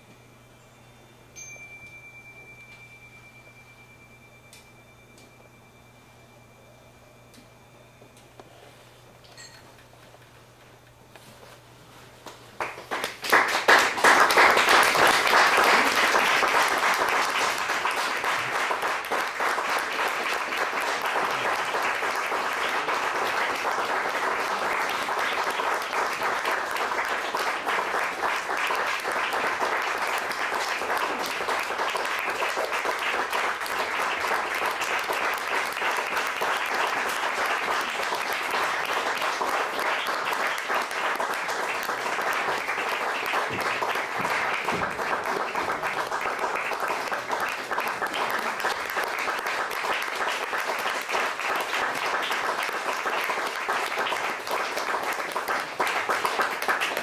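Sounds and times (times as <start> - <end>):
audience applauding: 12.6 - 57.0.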